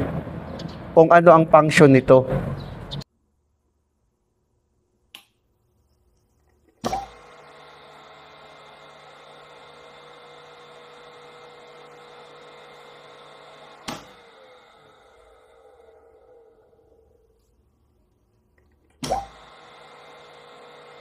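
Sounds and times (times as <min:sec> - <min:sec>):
electric motor humming and whining: 0:06.7 - 0:17.6, 0:19.0 - 0:21.0.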